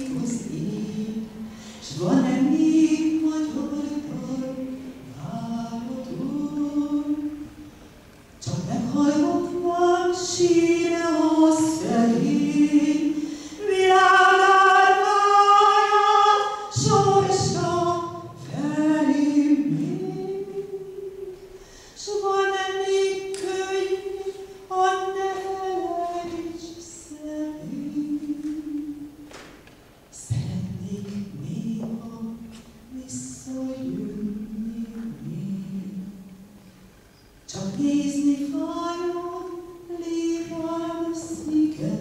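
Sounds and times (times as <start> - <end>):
woman singing unaccompanied: 0.0 - 7.7, 8.4 - 29.5, 30.1 - 36.6, 37.5 - 42.0
woman breathing: 1.4 - 1.8, 13.2 - 13.6, 21.5 - 22.0.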